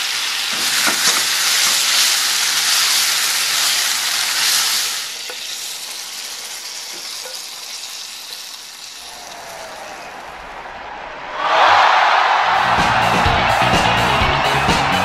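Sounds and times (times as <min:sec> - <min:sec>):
food sizzling in a pan: 0:00.0 - 0:10.3.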